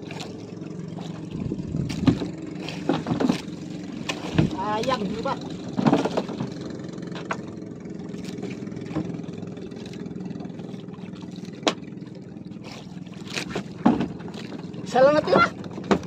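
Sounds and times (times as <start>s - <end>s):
boat engine idling: 0.0s - 16.0s.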